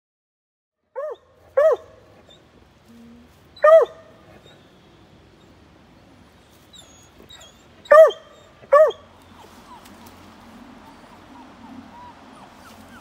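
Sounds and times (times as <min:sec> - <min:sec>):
puppy yelping: 0:01.0 - 0:02.5, 0:03.6 - 0:04.6, 0:06.7 - 0:10.2, 0:10.8 - 0:13.0.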